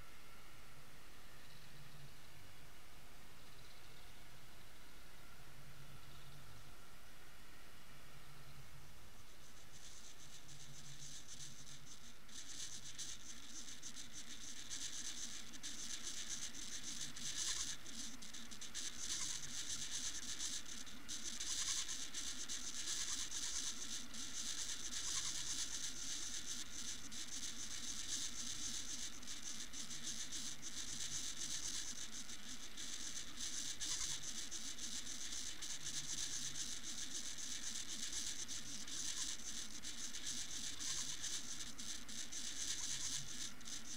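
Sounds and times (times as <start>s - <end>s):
underwater crackling and hiss: 9.4s - 43.9s.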